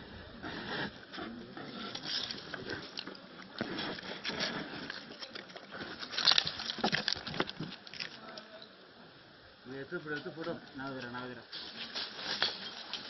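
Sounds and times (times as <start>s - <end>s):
bear snuffling breaths: 0.4s - 2.0s.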